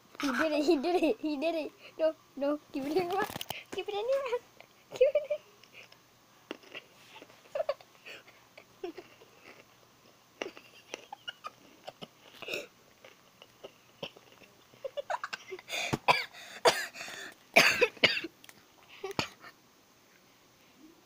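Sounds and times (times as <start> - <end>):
boy coughing harshly: 11.8 - 12.7, 15.1 - 18.3, 19.0 - 19.5
boy clearing throat: 17.6 - 18.3.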